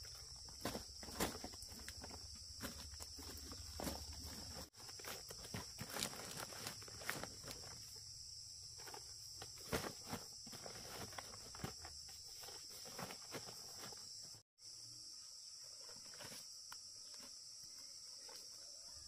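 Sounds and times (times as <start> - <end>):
footsteps through undergrowth: 0.0 - 8.0
insects droning: 0.0 - 19.0.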